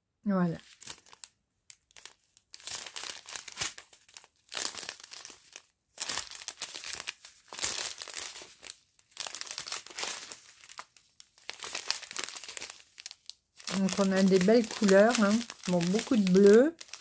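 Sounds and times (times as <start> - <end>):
plastic bags crinkling: 0.6 - 17.0.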